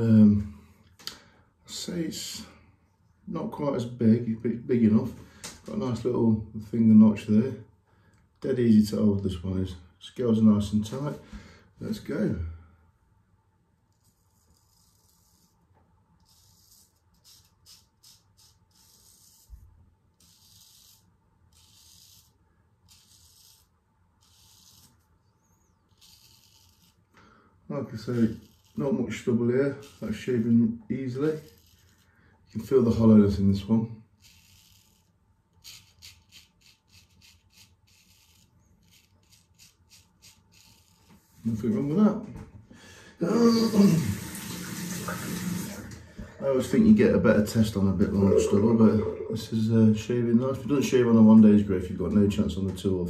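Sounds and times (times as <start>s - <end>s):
razor scraping stubble: 13.9s - 27.2s, 27.8s - 33.1s, 34.0s - 41.9s.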